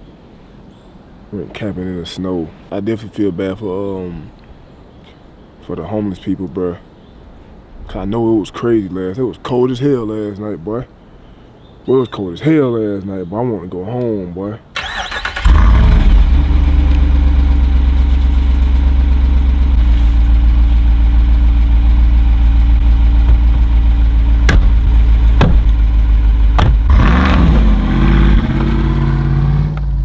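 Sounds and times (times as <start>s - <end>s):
car engine idling: 14.8s - 30.0s
sharp knocks: 24.4s - 25.8s, 26.5s - 26.9s.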